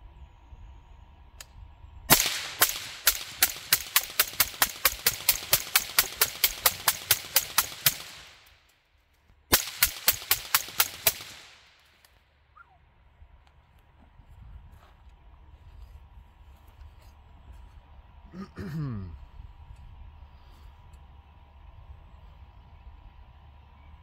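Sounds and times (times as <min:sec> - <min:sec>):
suppressed rifle shots: 0:02.1 - 0:08.5, 0:09.5 - 0:11.9.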